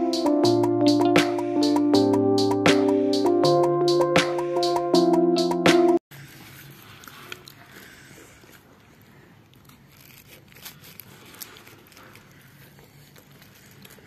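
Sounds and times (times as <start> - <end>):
plastic bag crinkling: 8.9 - 14.0.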